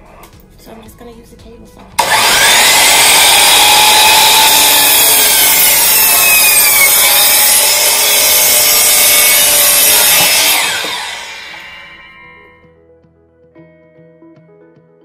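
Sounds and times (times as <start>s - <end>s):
miter saw cutting wood: 2.0s - 12.5s
saw blade winding down: 2.0s - 12.5s.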